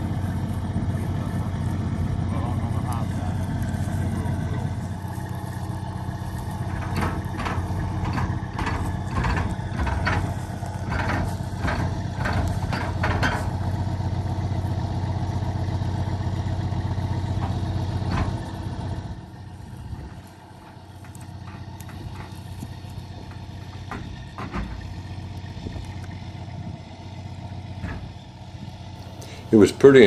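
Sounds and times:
diesel truck engine idling: 0:00.0 - 0:30.0
sharp knocks and clanks: 0:06.4 - 0:13.9, 0:17.2 - 0:19.0, 0:19.9 - 0:25.9, 0:27.7 - 0:28.3.

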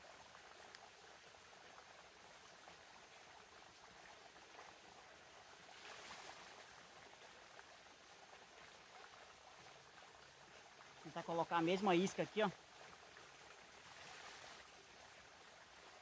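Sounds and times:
faint steady outdoor hiss: 0:00.0 - 0:16.0
faint ticks: 0:00.3 - 0:01.0.

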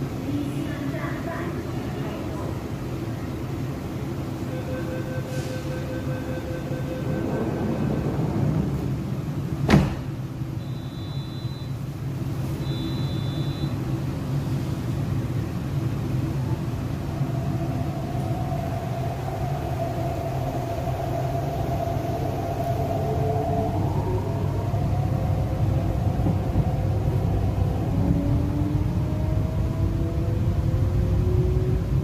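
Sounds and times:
low rumble of train car: 0:00.0 - 0:32.0
train doors shutting: 0:01.6 - 0:14.9, 0:26.0 - 0:28.4
short high beeps: 0:04.5 - 0:07.3, 0:10.6 - 0:11.8, 0:12.6 - 0:13.8.

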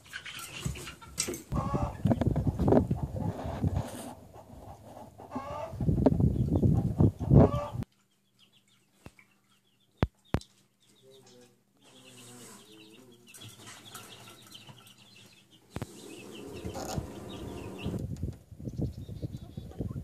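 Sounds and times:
hens clucking: 0:00.0 - 0:07.9, 0:11.3 - 0:18.1
chicks peeping: 0:00.0 - 0:20.0.

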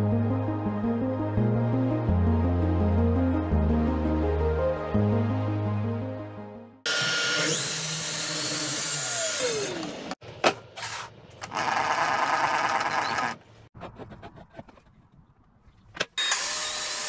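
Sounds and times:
background music: 0:00.0 - 0:06.9
miter saw cutting board: 0:06.9 - 0:10.2, 0:16.2 - 0:17.0
table saw cutting: 0:06.9 - 0:10.2, 0:16.2 - 0:17.0.

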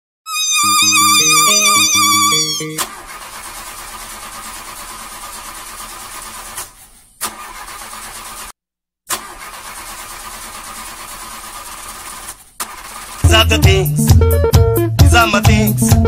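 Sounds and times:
car engine cranking: 0:01.2 - 0:08.5, 0:09.1 - 0:13.4.

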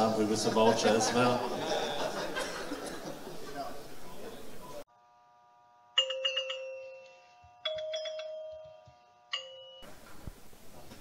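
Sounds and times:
bell-like chime jingle: 0:06.0 - 0:09.9.

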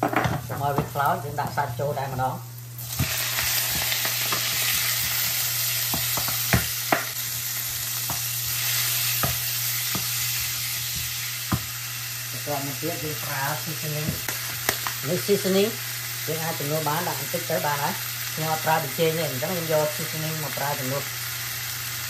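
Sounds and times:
meat sizzling in hot oil: 0:00.0 - 0:22.0
wooden spatula knocking on pan: 0:10.9 - 0:11.7.

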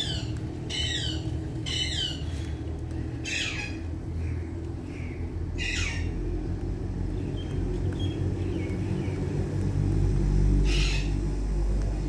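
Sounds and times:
parakeet squawk: 0:00.0 - 0:02.2, 0:03.2 - 0:03.8, 0:05.6 - 0:06.1, 0:10.6 - 0:11.2
steady low rumble: 0:00.0 - 0:12.0.

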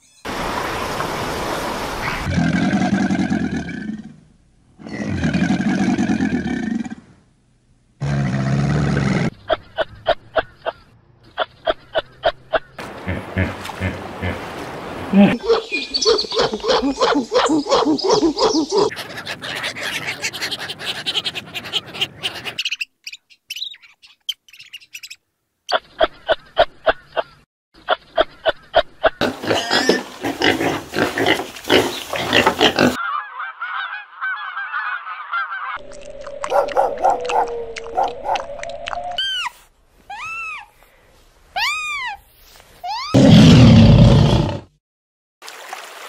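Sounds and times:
lion roaring: 0:04.8 - 0:07.0, 0:35.8 - 0:39.0, 0:43.2 - 0:44.8
high bird chirps: 0:15.4 - 0:16.6, 0:22.6 - 0:26.0
steady tone: 0:35.8 - 0:39.2.

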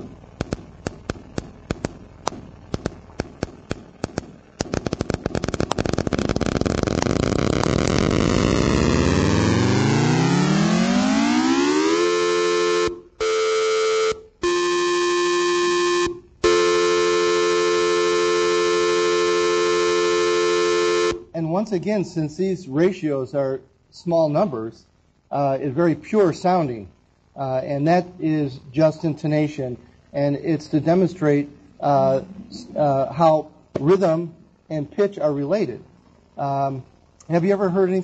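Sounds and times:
two steady pure tones: 0:00.0 - 0:22.1.

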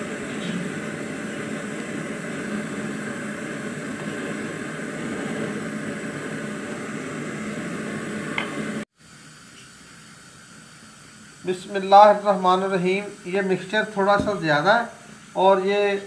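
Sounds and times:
machine-like hum and hiss: 0:00.0 - 0:16.0.

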